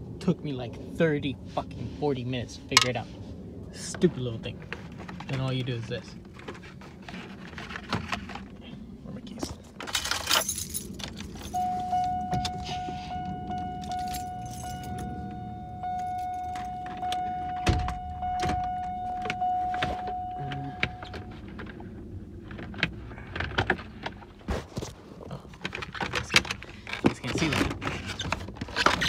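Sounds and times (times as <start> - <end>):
keys clicking and knocking: 9.8 - 12.6, 13.4 - 15.1
car warning chime: 11.4 - 21.5.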